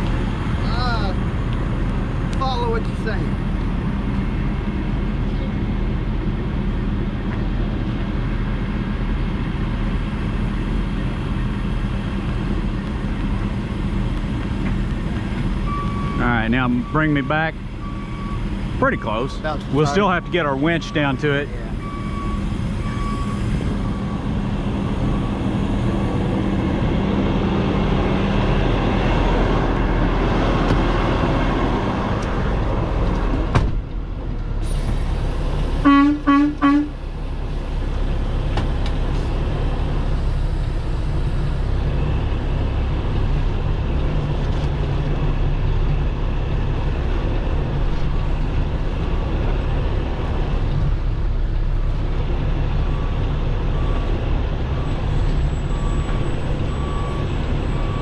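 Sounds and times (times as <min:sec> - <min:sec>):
diesel truck engine running: 0:00.0 - 0:58.0
horn toots: 0:35.8 - 0:37.0.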